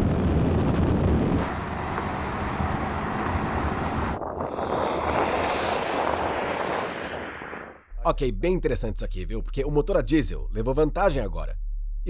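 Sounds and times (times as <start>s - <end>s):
car engines at speed: 0.0s - 7.9s
wind on microphone: 0.0s - 7.9s.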